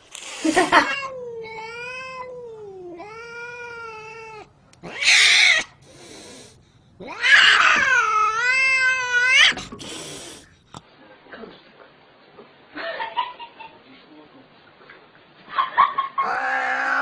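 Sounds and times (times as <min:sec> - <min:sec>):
cat yowling: 0:00.7 - 0:05.8, 0:07.0 - 0:09.6, 0:16.2 - 0:17.0.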